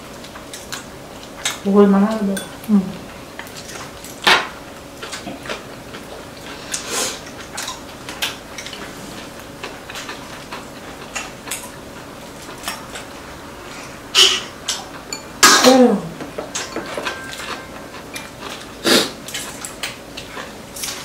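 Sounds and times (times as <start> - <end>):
cutlery clicking on ceramic bowls: 16.3 - 18.6.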